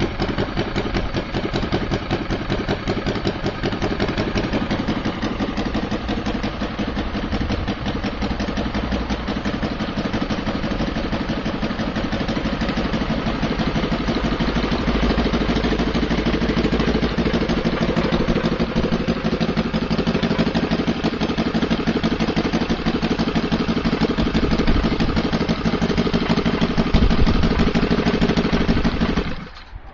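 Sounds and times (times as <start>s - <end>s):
model aircraft engine running: 22.1s - 29.6s.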